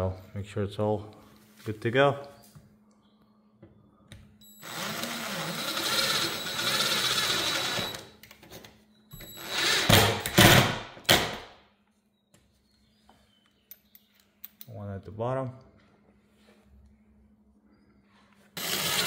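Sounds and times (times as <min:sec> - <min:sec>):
cordless drill whining: 0:04.5 - 0:08.1, 0:09.1 - 0:10.2, 0:18.6 - 0:19.0.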